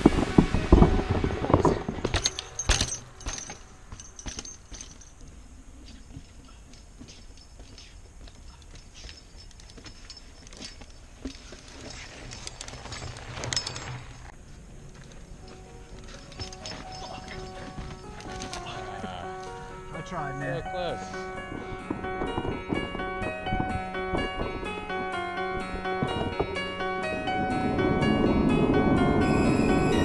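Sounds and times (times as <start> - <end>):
bike rattling over stone steps: 1.6 - 19.8, 21.0 - 29.4
metallic jingles: 2.0 - 27.5
small clicks and rattles: 2.1 - 14.3.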